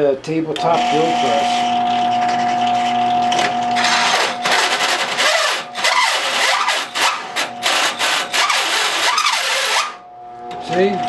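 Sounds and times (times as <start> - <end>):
hole saw grinding into steel: 3.8 - 10.0.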